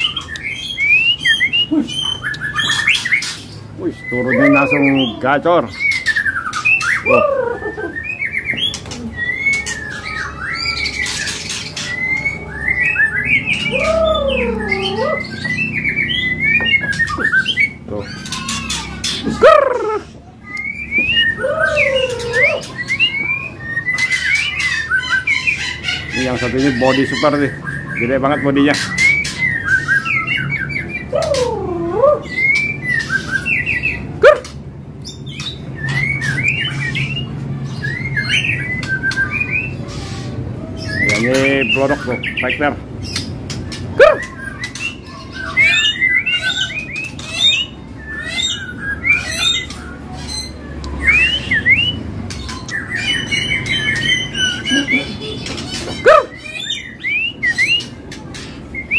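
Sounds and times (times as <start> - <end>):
bird singing: 0.0 - 58.9
sharp bird call: 9.2 - 26.9.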